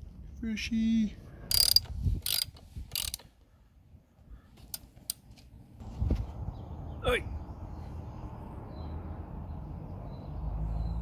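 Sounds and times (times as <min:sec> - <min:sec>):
ratchet clicking: 0:01.5 - 0:03.3
sharp metal clicks: 0:01.5 - 0:03.3.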